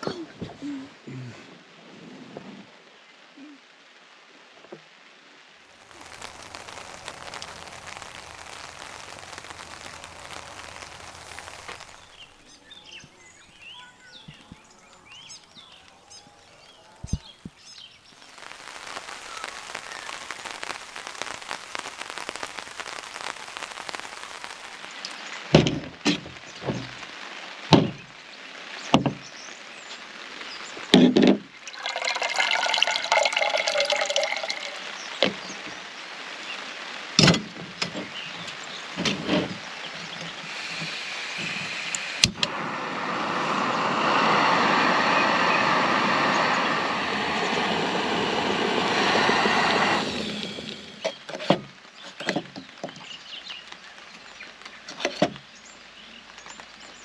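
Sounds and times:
rain falling: 0.0 - 57.0
small birds chirping: 5.8 - 31.0, 39.6 - 42.2, 50.2 - 57.0.

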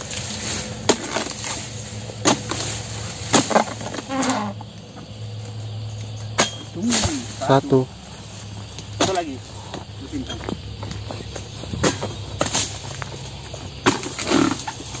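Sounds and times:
chisel chopping palm stalks: 0.0 - 4.6, 6.2 - 7.6, 8.8 - 15.0
steady low hum: 0.0 - 15.0.

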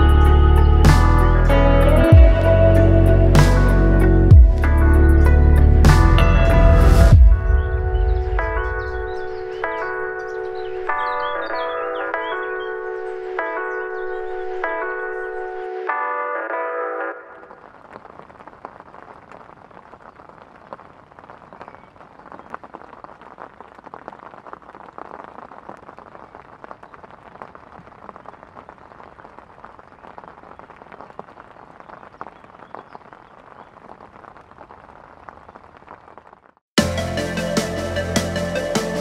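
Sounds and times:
rain falling on water: 17.1 - 36.6.

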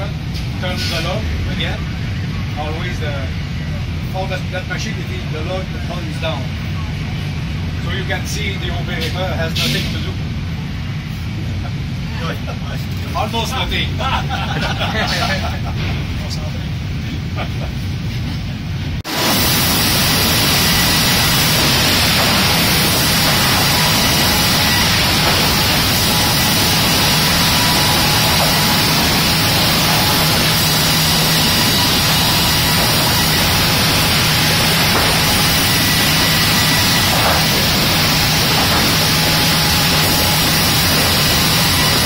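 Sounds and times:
sawmill machinery din: 19.1 - 42.0.

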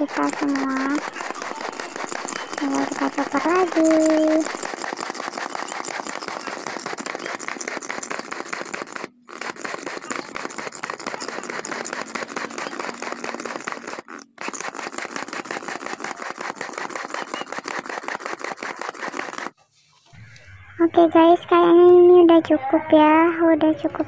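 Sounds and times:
manual food chopper clattering: 0.0 - 19.5.

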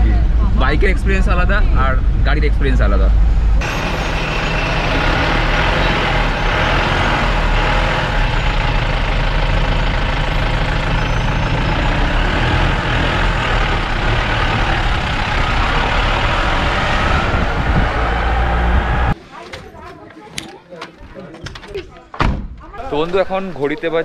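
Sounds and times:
car engine and road noise: 0.0 - 19.2.

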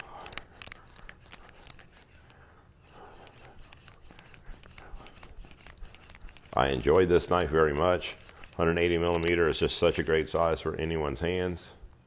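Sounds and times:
blade clicking: 0.0 - 9.9.

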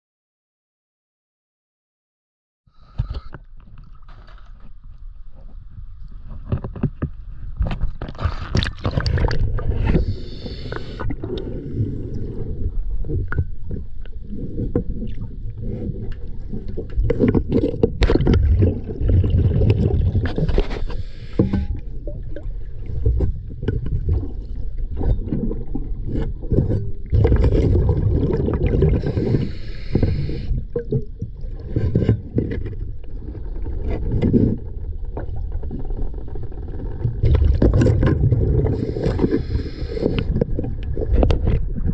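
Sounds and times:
water sloshing and gurgling: 3.0 - 41.9.

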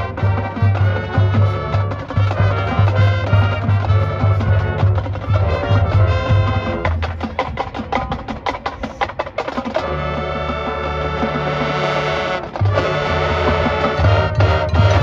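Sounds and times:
marching band playing: 0.0 - 15.0
rapid sharp percussion hits: 11.4 - 15.0.

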